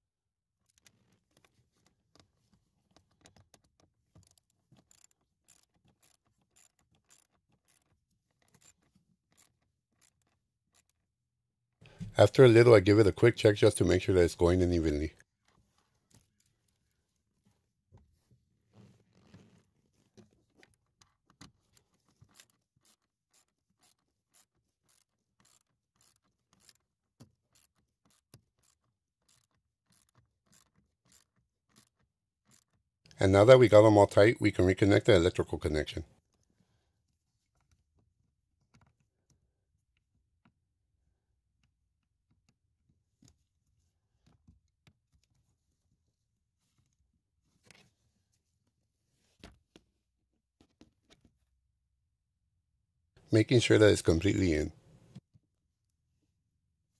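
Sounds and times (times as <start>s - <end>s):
socket ratchet clicking: 3.0s - 11.0s, 22.2s - 26.8s, 27.4s - 32.8s.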